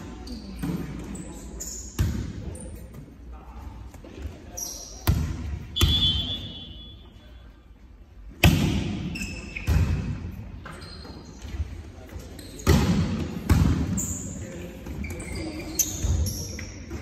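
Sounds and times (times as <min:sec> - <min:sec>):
volleyball smacks in echoing hall: 0:01.8 - 0:02.6, 0:05.0 - 0:06.8, 0:08.3 - 0:10.8, 0:12.5 - 0:17.0.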